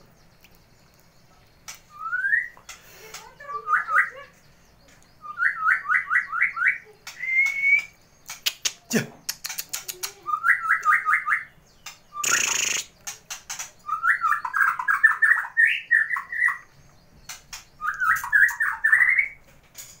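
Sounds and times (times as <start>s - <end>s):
bird whistling song: 0.9s - 19.4s
sharp clicks: 7.0s - 10.2s, 11.8s - 13.8s.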